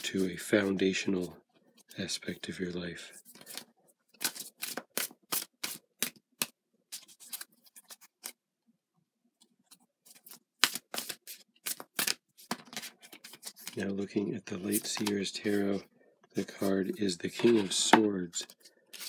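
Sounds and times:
cards being shuffled: 3.2s - 8.4s, 9.7s - 13.9s, 14.6s - 15.8s, 16.4s - 19.0s.

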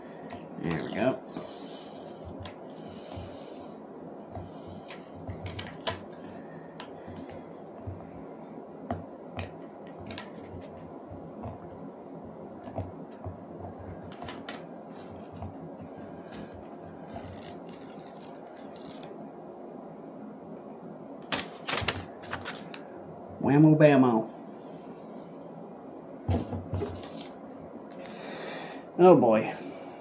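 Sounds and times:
low background noise: 0.0s - 30.0s
paper crinkles and scratches: 10.0s - 10.9s, 14.0s - 19.2s, 21.4s - 22.8s
paper backing being peeled: 14.1s - 19.2s, 21.4s - 22.8s.

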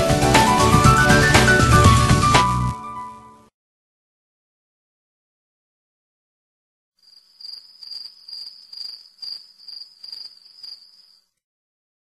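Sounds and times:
crickets chirping: 7.0s - 11.4s.

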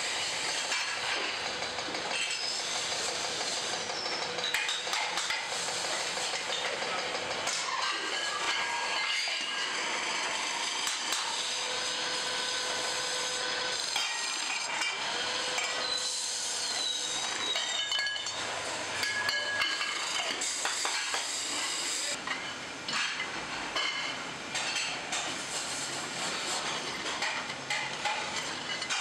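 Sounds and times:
lathe tool scraping metal: 7.5s - 22.2s
high squeal: 15.6s - 18.3s.

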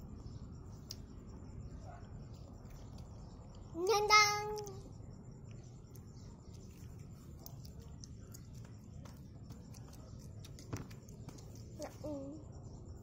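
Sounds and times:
low background noise: 0.0s - 13.0s.

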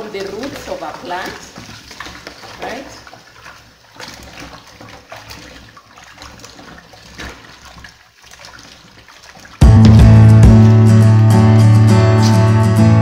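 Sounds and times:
tap water running into bowl: 0.0s - 9.7s
hands splashing in water: 0.0s - 10.9s
loud guitar music: 9.6s - 13.0s.

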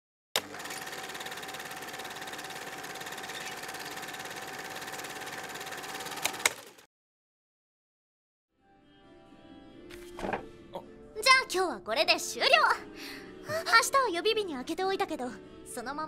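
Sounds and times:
film projector whirring: 0.4s - 6.9s.

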